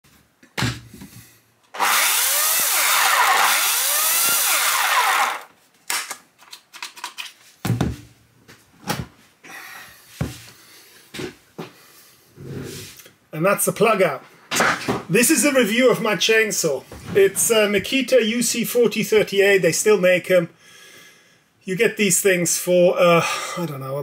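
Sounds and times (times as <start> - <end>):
electric chainsaw running: 1.7 - 5.5
clicks and knocks handling saw: 5.9 - 7.4.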